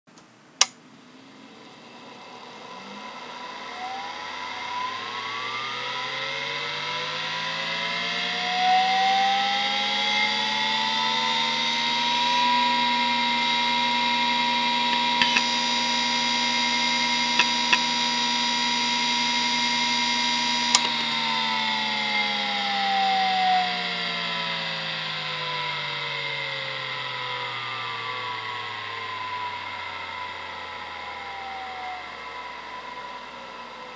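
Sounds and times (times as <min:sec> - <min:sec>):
hard drive whine: 0:00.6 - 0:33.9
hard drive clicks: 0:14.9 - 0:15.6, 0:17.3 - 0:18.0.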